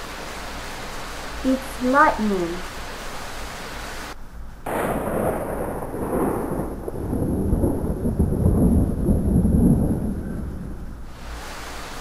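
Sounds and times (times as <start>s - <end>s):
thunder crash and rumble: 4.6s - 11.1s.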